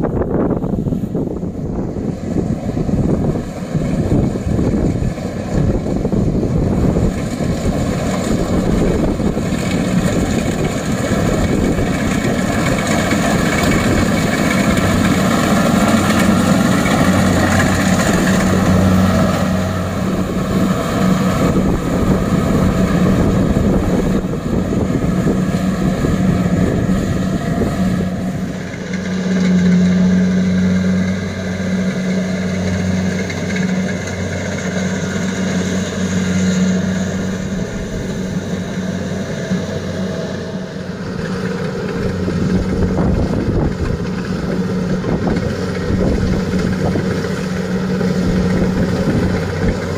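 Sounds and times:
combine harvester diesel engine hum: 0.0s - 49.9s
working machinery noise: 0.0s - 49.9s.

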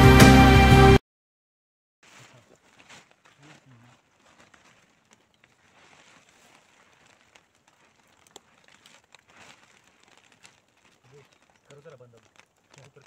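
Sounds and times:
plastic sheet crinkling: 2.0s - 13.0s
small ticks: 3.2s - 13.0s.

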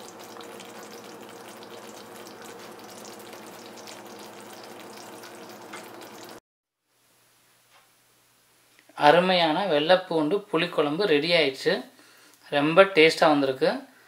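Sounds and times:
gravy sizzling in a pot: 0.0s - 6.4s.

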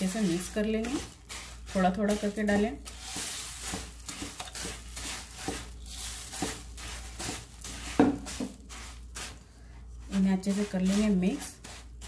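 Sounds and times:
puffed rice pouring: 0.0s - 9.4s
wooden spatula scraping pan: 0.0s - 12.0s.

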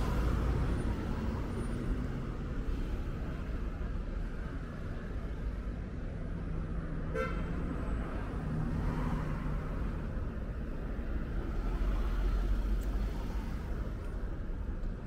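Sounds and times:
street traffic rumbling: 0.0s - 15.0s
vehicle horn toot: 7.1s - 7.4s.

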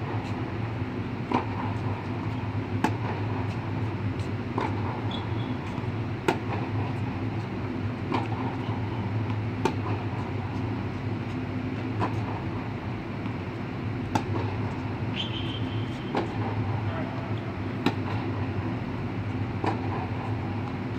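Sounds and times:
air handling hum: 0.0s - 20.9s
tennis racquets hitting ball: 1.2s - 7.1s, 8.0s - 11.0s, 11.6s - 13.4s, 14.0s - 18.8s, 19.5s - 20.8s
tennis ball bouncing: 1.2s - 11.0s, 11.6s - 18.8s, 19.5s - 20.9s.

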